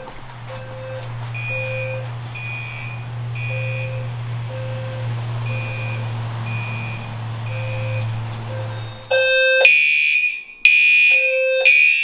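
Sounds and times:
steady low hum: 0.0s - 9.6s
higher-pitched alarm horn: 0.0s - 12.0s
low-pitched alarm beeps: 0.0s - 12.0s.

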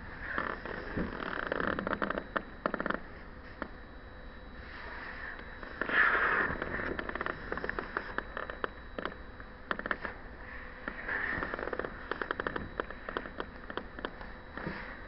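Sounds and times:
paper crackles and ticks: 10.9s - 14.9s.

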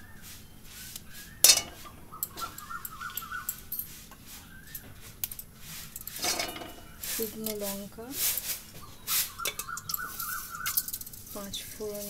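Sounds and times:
faint bird chirps: 0.0s - 5.2s, 8.6s - 12.0s.

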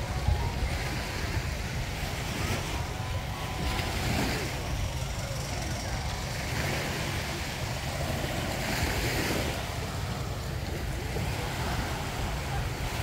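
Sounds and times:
small waves washing onto beach: 0.0s - 13.0s
wind rumbling on microphone: 0.0s - 13.0s.

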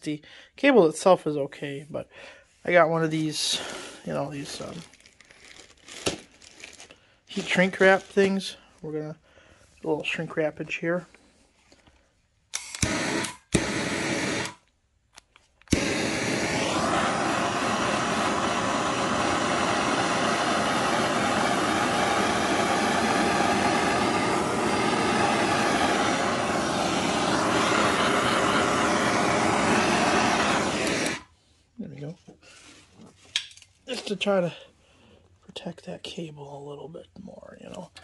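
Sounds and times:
torch trigger click: 12.5s - 14.6s, 15.2s - 20.1s, 20.8s - 31.2s
propane torch roaring hiss: 12.6s - 14.6s, 15.7s - 31.3s.

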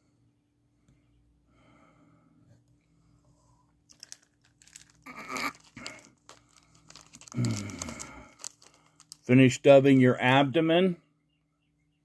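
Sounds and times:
materials rustling and crinkling: 3.8s - 9.5s.

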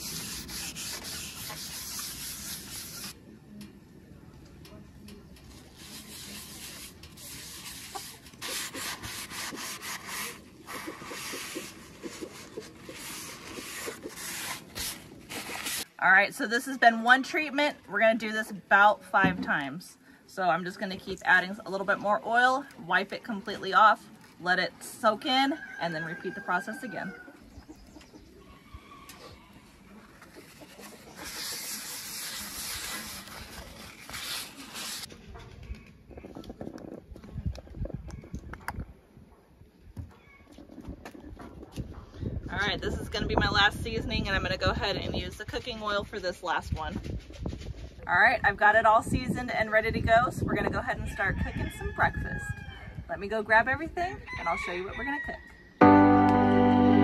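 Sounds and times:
paper towel rubbing hot griddle: 0.0s - 3.2s, 5.5s - 15.9s, 30.2s - 35.1s.

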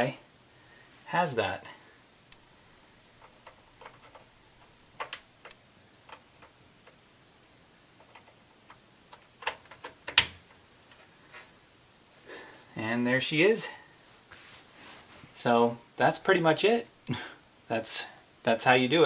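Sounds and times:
plastic connectors clicking and tapping: 3.2s - 7.0s.

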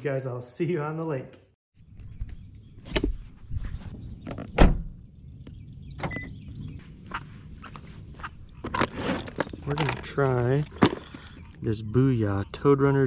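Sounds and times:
fishing gear knocking and clattering: 8.6s - 11.5s.

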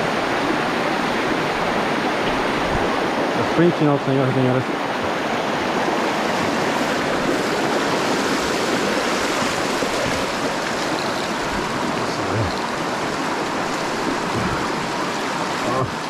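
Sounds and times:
creek rushing over stones: 0.0s - 16.0s.

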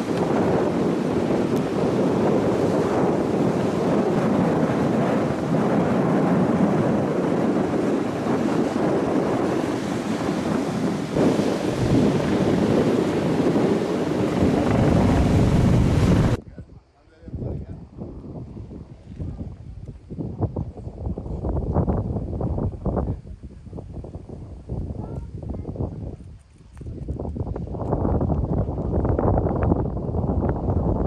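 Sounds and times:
surf breaking on pebbles: 0.0s - 16.4s
wind buffeting microphone: 0.0s - 31.0s.

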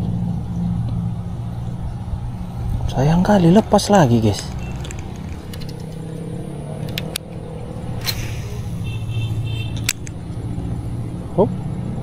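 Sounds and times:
motor engine humming: 0.0s - 11.2s
sharp clicks: 6.8s - 7.4s, 8.0s - 8.8s, 9.7s - 10.4s.

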